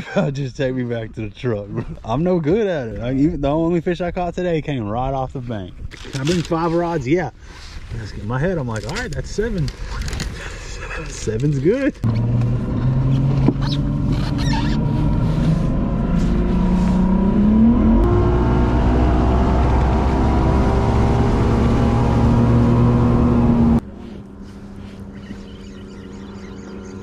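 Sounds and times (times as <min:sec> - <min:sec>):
outboard motor running: 0:19.2 - 0:27.0.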